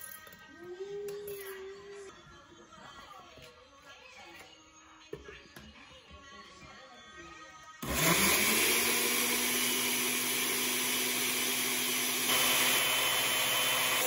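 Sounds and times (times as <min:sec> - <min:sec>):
blender motor running: 0:07.8 - 0:14.0.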